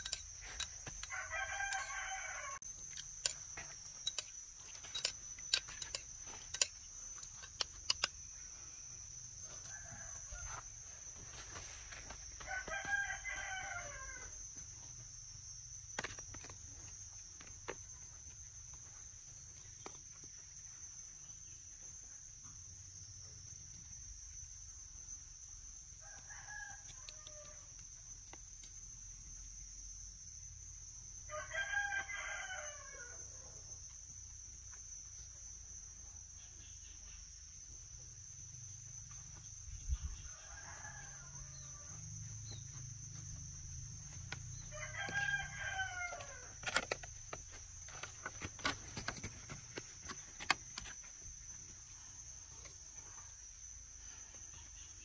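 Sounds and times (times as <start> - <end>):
roosters crowing: 0.0 - 2.7, 9.4 - 14.5, 26.0 - 27.7, 31.3 - 33.6, 40.1 - 42.6, 44.0 - 49.4
high insect buzz: 0.0 - 55.0.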